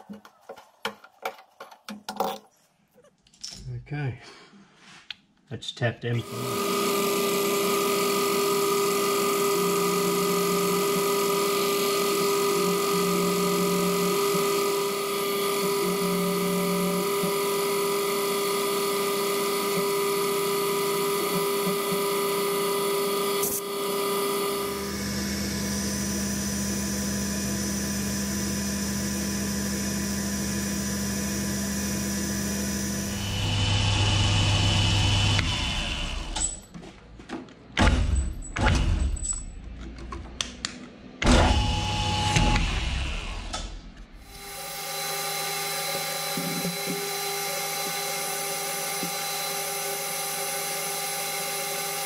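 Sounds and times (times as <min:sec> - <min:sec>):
milling machine motor whine: 0:06.2 - 0:36.5, 0:41.2 - 0:52.0.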